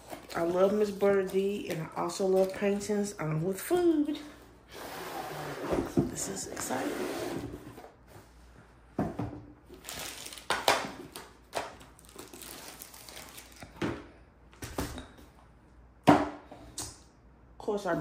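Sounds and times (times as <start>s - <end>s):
wrappings rustling: 9.8s - 11.2s, 11.9s - 13.7s.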